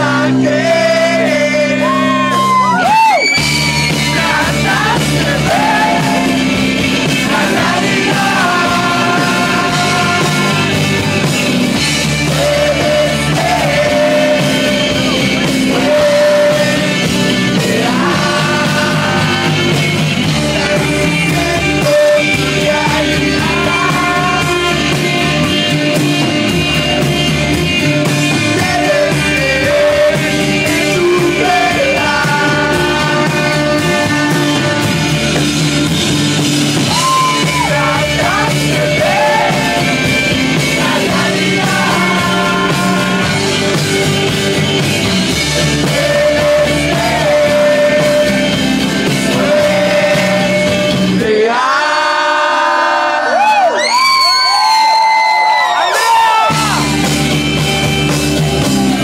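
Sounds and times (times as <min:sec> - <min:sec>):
live rock band playing: 0:00.0 - 0:51.6, 0:53.8 - 0:59.0
man singing lead: 0:00.0 - 0:53.8, 0:55.9 - 0:59.0.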